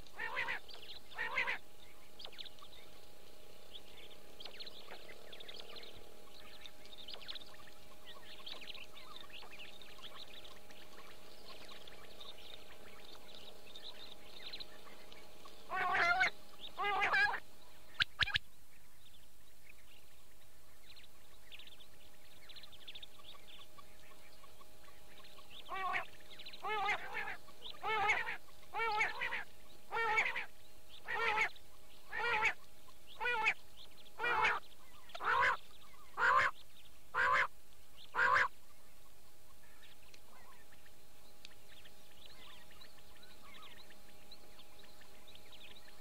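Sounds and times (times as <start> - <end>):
faint hum: 0.0 - 46.0
quail calls: 0.1 - 1.6, 13.9 - 18.4, 23.1 - 33.6, 34.2 - 37.5, 38.1 - 38.5.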